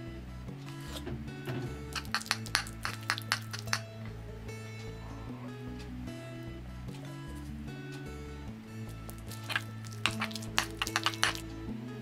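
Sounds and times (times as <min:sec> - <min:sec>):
soft background music: 0:00.0 - 0:12.0
metal spoon scraping porcelain bowl: 0:02.0 - 0:03.8, 0:09.3 - 0:11.4.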